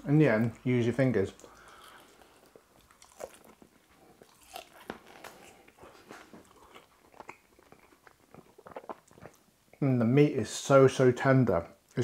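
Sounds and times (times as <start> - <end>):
person chewing crunchy food: 1.4 - 9.5.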